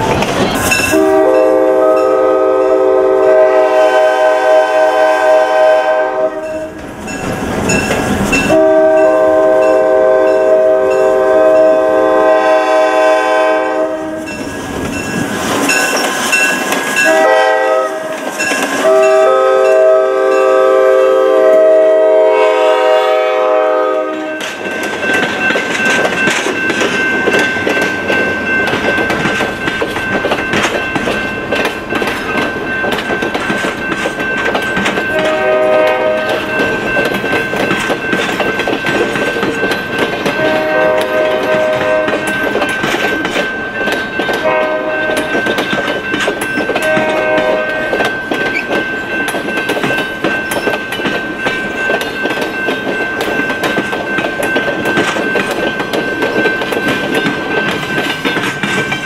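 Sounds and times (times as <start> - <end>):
locomotive air horn blasts: 0.9 - 6.8, 8.5 - 14.3, 17.0 - 18.1, 18.8 - 24.4, 35.1 - 36.5, 40.4 - 42.4, 44.4 - 45.3, 46.8 - 48.0
train wheels clattering over rail joints: 24.2 - 59.0.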